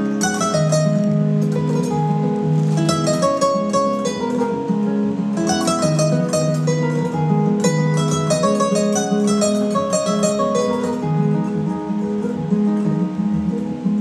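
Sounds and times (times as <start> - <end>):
plucked string instrument: 0.0 - 14.0.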